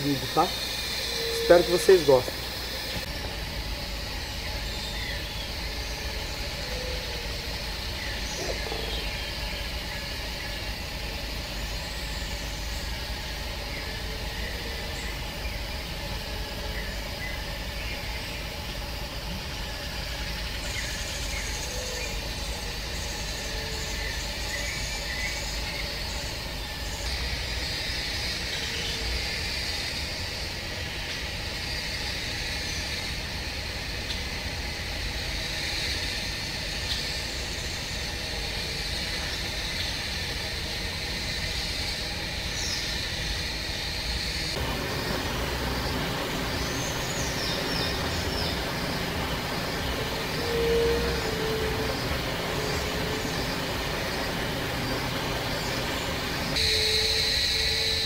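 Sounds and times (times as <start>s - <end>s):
high buzz: 41.6s - 58.0s.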